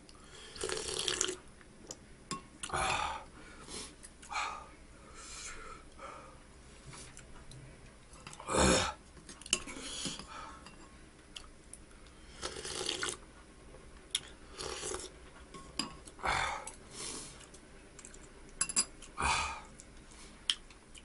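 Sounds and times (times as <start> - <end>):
person slurping broth: 0.4 - 1.4, 12.4 - 13.2, 14.5 - 15.1
spoon and chopsticks clinking on bowl: 18.6 - 19.0.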